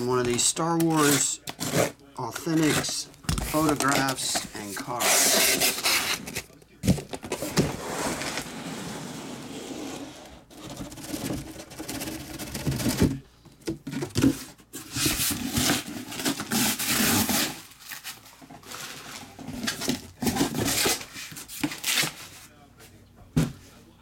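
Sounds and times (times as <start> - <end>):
cardboard box scraping: 0.9 - 6.5, 7.2 - 13.0
plastic wrap rustling: 14.8 - 22.4.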